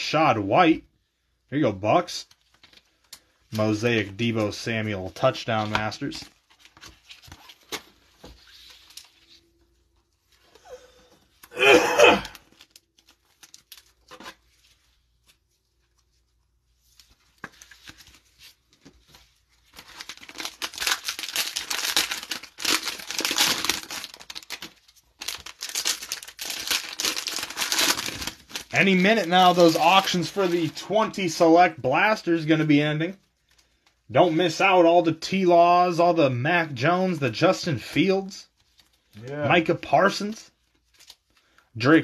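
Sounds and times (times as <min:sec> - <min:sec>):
plastic wrapper tearing and crinkling: 0:12.3 - 0:14.6, 0:19.6 - 0:31.2, 0:40.6 - 0:41.6.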